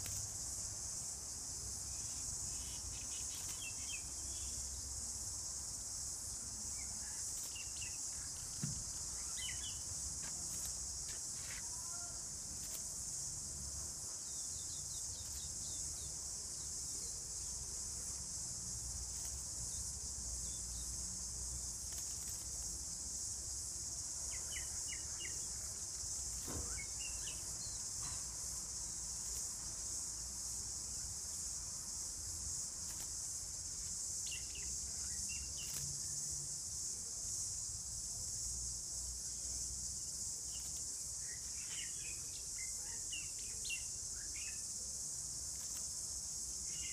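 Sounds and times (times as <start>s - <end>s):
insect chorus drone: 0.0s - 46.9s
bird chirps: 9.1s - 9.8s.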